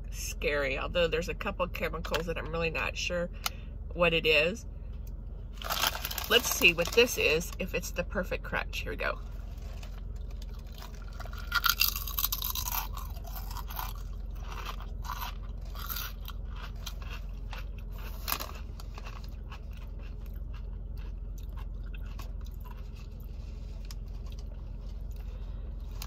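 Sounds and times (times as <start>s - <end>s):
potato chip crunching: 5.6s - 7.6s, 9.5s - 26.0s
chewing: 9.6s - 26.0s.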